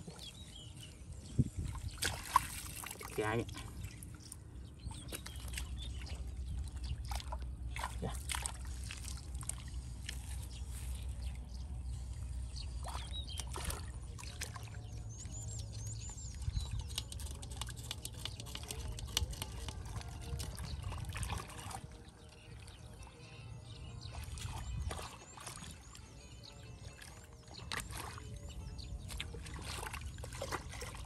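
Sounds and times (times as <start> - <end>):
water trickling: 0.0 - 10.6, 12.8 - 22.5
hands splashing in muddy water: 1.6 - 3.9, 4.9 - 11.2, 29.1 - 31.0.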